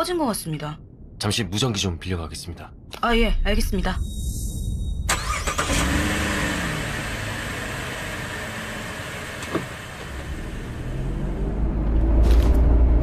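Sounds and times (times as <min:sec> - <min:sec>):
car engine and road noise: 0:05.0 - 0:13.0.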